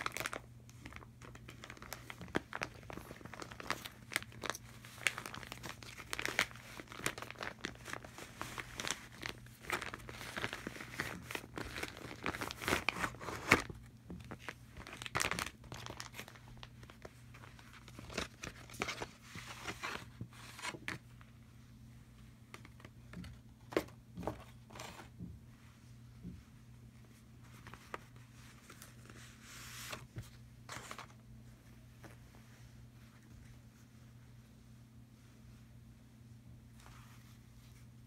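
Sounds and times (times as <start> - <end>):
plastic bag crinkling: 0.0 - 20.7.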